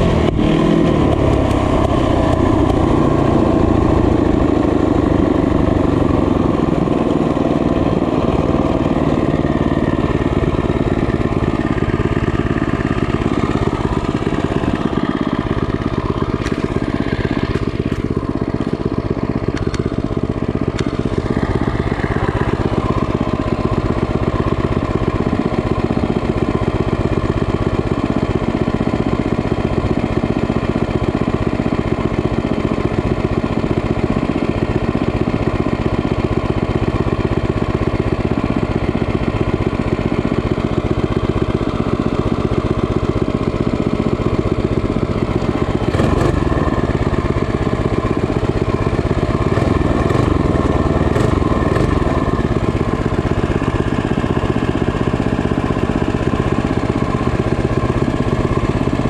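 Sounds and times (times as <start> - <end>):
small motorbike engine running: 0.0 - 59.0.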